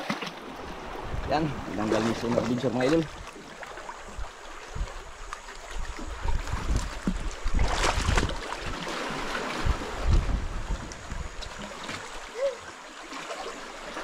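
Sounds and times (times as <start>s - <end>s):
sea water washing: 0.0s - 14.0s
wind buffeting microphone: 0.7s - 3.3s, 4.0s - 12.0s.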